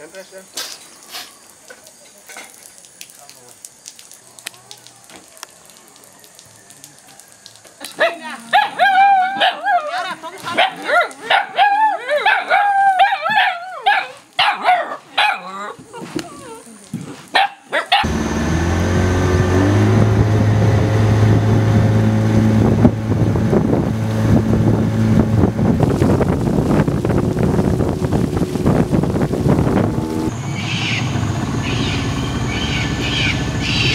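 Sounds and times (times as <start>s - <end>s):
dogs barking and yelping: 7.9s - 18.1s
boat motor running: 18.0s - 33.9s.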